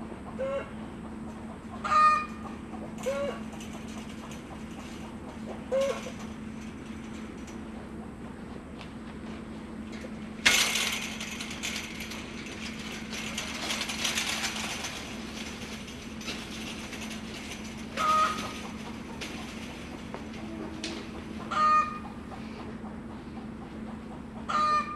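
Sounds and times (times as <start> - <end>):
chain-link panel rattling: 3.0 - 7.6, 9.9 - 21.6.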